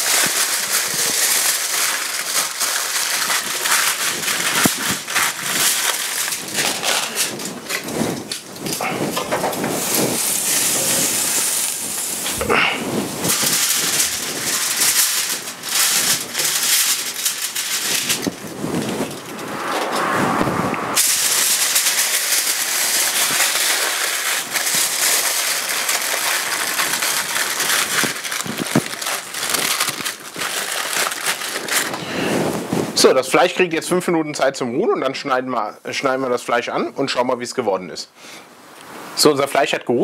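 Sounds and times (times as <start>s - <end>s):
aluminium foil crinkling: 0.0s - 19.4s, 21.0s - 33.6s
meat sizzling on a grill: 8.8s - 18.2s, 21.0s - 28.9s.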